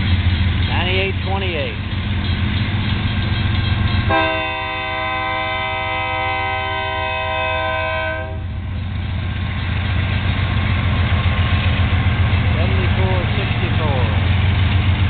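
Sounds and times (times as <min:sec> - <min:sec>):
locomotive engine rumbling: 0:00.0 - 0:15.0
locomotive air horn: 0:04.1 - 0:08.5.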